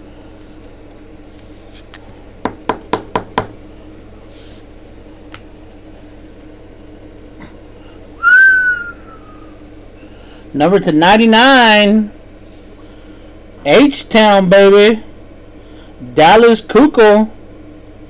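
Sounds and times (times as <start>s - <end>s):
steady low hum: 0.0s - 18.0s
loud sound sliding down in pitch: 8.2s - 9.6s.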